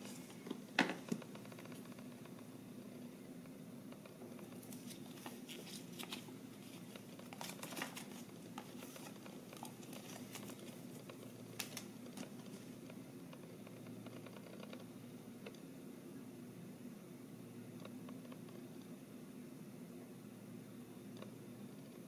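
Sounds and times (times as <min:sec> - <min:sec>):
faint low hum: 0:00.0 - 0:22.0
paper and card rustling: 0:04.4 - 0:12.7.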